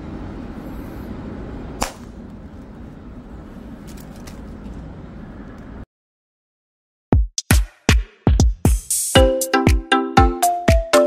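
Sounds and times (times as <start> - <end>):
low background noise: 0.0 - 5.8.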